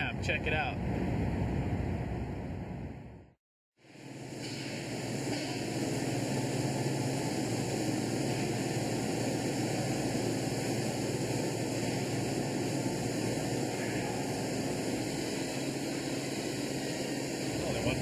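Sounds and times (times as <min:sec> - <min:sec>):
factory floor industrial hum: 0:03.8 - 0:18.0
constant low drone: 0:04.1 - 0:18.0.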